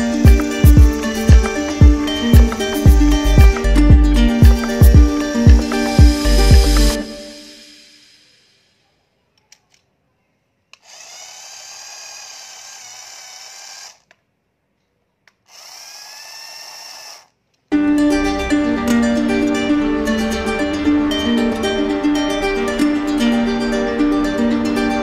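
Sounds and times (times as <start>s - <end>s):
toy car motor whirring: 10.7s - 14.2s, 15.3s - 17.4s.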